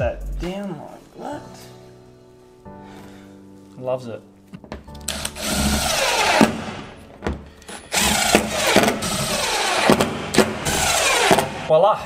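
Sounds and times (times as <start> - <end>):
impact driver driving screws: 5.1 - 7.0, 7.6 - 11.7.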